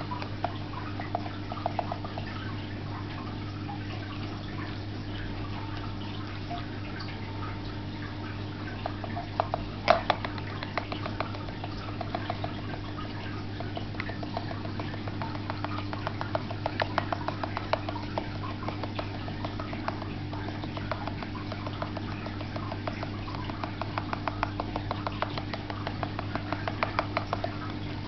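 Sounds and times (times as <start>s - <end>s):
aquarium filter hum: 0.0s - 28.0s
rapid small clicks and ticks: 8.8s - 28.0s.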